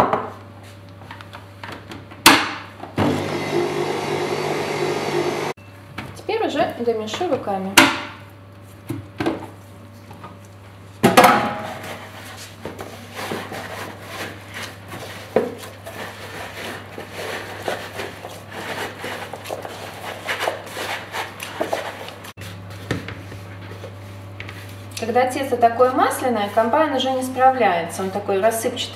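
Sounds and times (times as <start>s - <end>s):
hands kneading dough in bowl: 11.8s - 28.8s.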